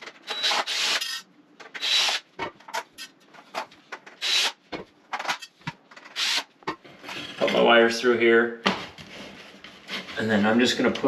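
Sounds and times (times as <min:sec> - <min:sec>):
cordless drill running: 0:00.4 - 0:01.0.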